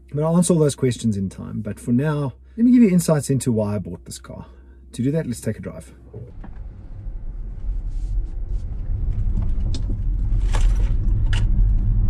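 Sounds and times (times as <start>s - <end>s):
road and tyre rumble: 6.0s - 12.0s.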